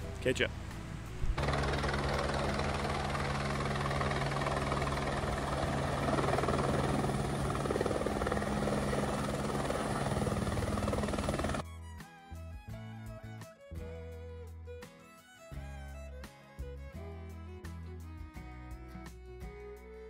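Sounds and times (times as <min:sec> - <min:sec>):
helicopter rotor beating: 0:01.2 - 0:11.6.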